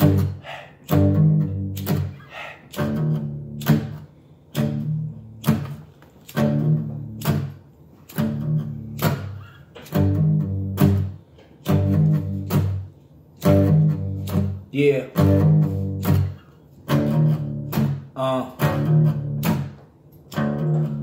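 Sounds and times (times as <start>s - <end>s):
acoustic guitar strumming: 0.0s - 21.0s.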